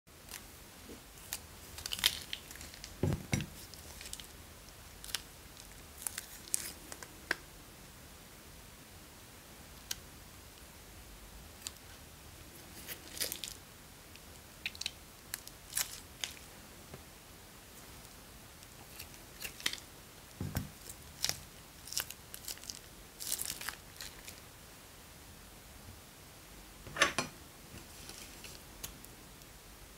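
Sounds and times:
plastic bag crinkling: 0:01.2 - 0:04.3, 0:20.5 - 0:24.4.

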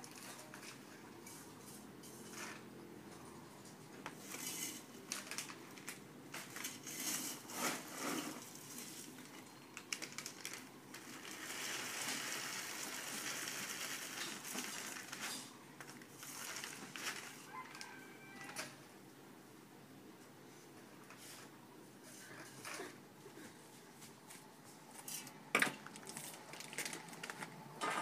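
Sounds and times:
plastic bags rustling: 0:04.2 - 0:18.7, 0:22.2 - 0:28.0.

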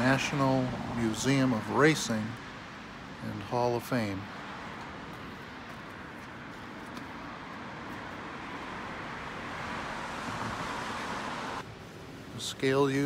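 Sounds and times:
vehicle approaching: 0:04.5 - 0:11.9
car tyres hissing on street: 0:06.2 - 0:13.0.

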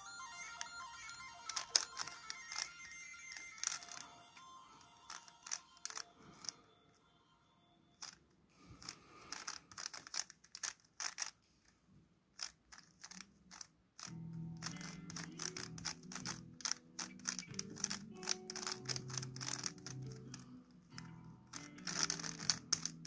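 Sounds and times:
background music with low notes: 0:00.0 - 0:08.2, 0:14.1 - 0:23.0
puzzle cube plastic clicks: 0:00.5 - 0:06.6, 0:08.0 - 0:11.8, 0:12.4 - 0:23.0.

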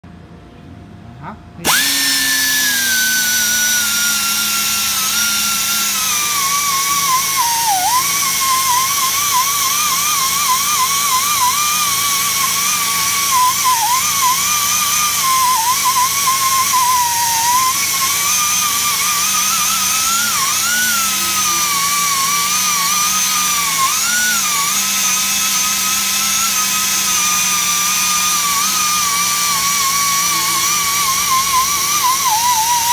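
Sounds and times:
angle grinder whining: 0:01.6 - 0:32.9.

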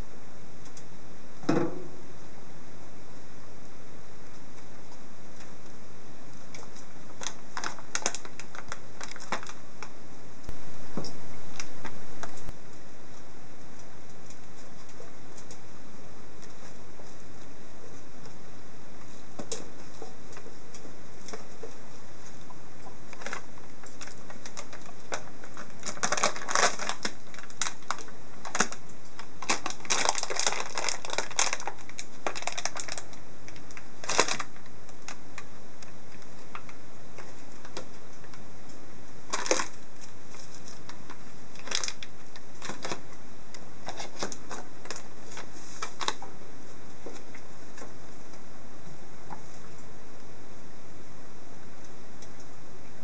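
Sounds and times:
packaging crinkling: 0:06.5 - 0:10.0, 0:22.8 - 0:38.2, 0:39.3 - 0:43.1, 0:43.8 - 0:46.3.

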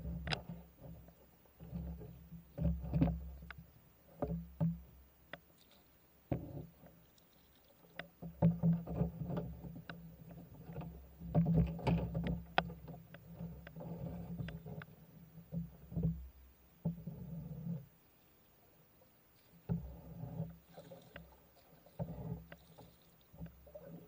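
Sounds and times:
paddle knocking boat: 0:00.0 - 0:05.5, 0:06.2 - 0:17.9, 0:19.5 - 0:24.0
paddle strokes: 0:00.0 - 0:24.0.

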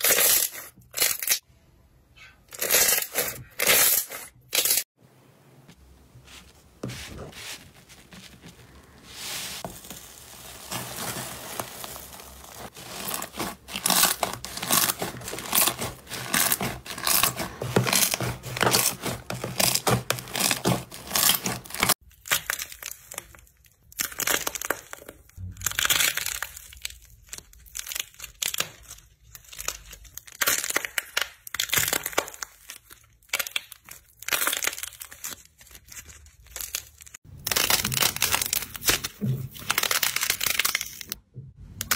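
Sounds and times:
paper crinkling over slime: 0:06.3 - 0:41.2
dried clay cracking and crunching: 0:09.6 - 0:41.2.

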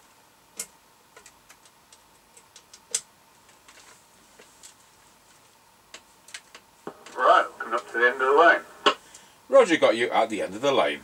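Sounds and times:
cables being handled: 0:00.6 - 0:07.9.

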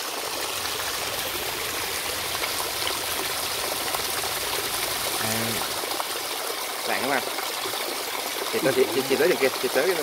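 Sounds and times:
water splashing over rocks: 0:00.0 - 0:10.0.

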